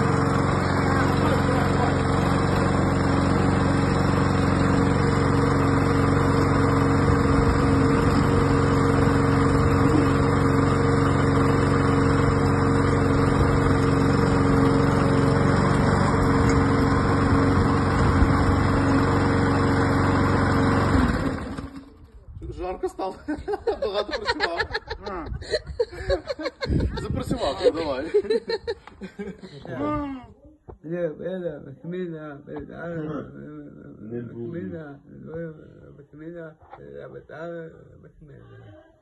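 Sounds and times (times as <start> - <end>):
lawn mower engine running: 0.0 - 22.4.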